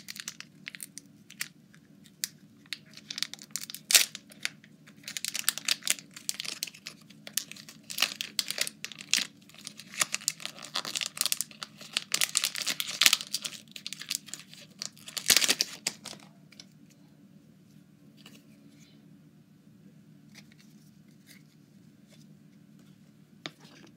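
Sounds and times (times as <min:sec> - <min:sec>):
foil wrapper crinkling and tearing: 0:00.0 - 0:16.3.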